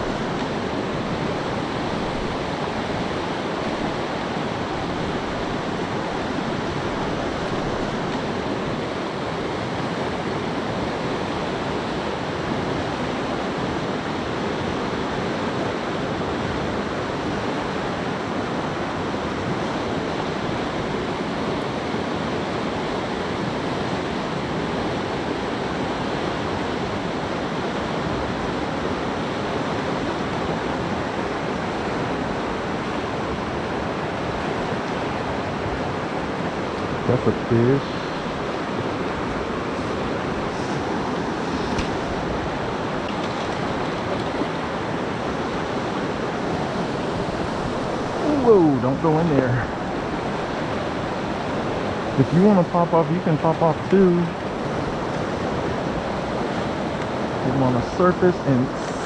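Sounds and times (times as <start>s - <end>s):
river water rushing: 0.0s - 59.0s.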